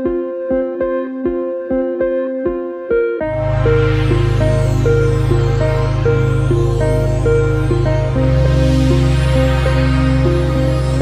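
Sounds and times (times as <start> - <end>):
electronic synth notes: 0.0 - 11.0
steady deep bass: 3.2 - 11.0.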